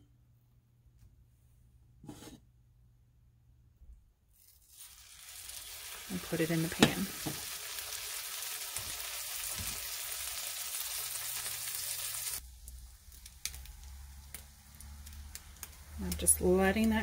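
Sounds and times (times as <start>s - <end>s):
butter sizzling in frying pan: 4.4s - 17.0s
popping in pan: 4.4s - 17.0s.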